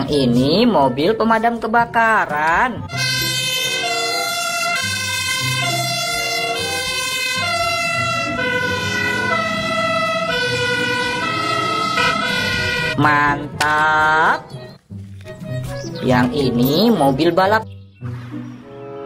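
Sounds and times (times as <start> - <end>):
fire engine two-tone siren: 2.9 - 13.7.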